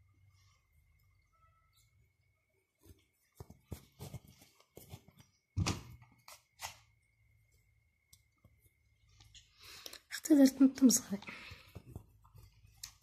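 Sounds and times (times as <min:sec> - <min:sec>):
light knocks and rustles of sewing: 0:11.1 - 0:13.0.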